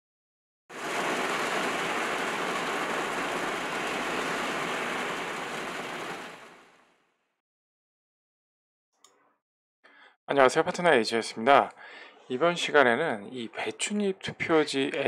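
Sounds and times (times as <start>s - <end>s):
rain hissing: 0.7s - 6.8s.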